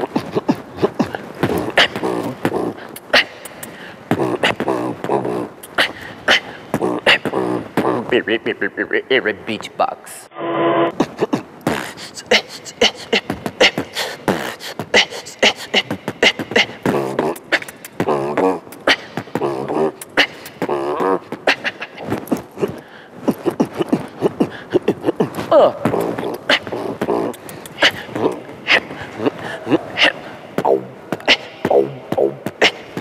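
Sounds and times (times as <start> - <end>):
person beatboxing: 0.0 - 10.3, 10.9 - 33.0
wavering vocal tones: 0.0 - 33.0.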